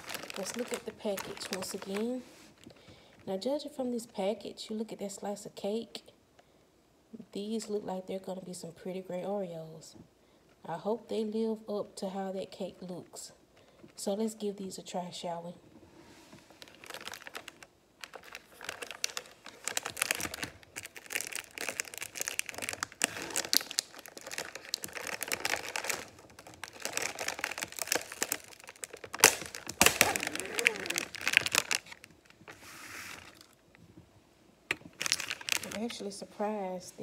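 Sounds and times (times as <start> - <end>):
plastic wrapper crinkling: 0.0 - 3.2, 16.4 - 34.0, 34.7 - 36.2.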